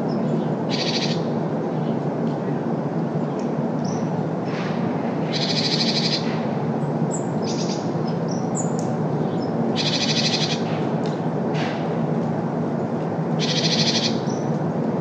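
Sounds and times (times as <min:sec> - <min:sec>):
road traffic hum: 0:00.0 - 0:15.0
bird chattering calls: 0:00.7 - 0:01.3, 0:05.3 - 0:06.4, 0:07.4 - 0:08.7, 0:09.4 - 0:10.7, 0:13.4 - 0:14.4
bird chirps: 0:05.3 - 0:06.3, 0:07.4 - 0:10.6.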